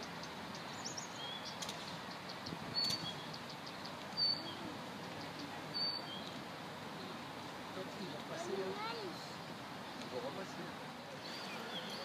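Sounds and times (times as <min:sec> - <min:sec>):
small birds chirping: 0:00.0 - 0:09.3, 0:11.0 - 0:12.0
outdoor background noise: 0:00.0 - 0:12.0
faint sharp clicks: 0:01.6 - 0:04.2.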